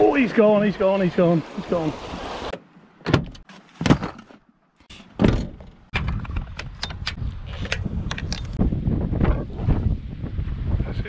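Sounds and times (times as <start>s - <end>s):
wind on microphone: 5.9s - 11.0s.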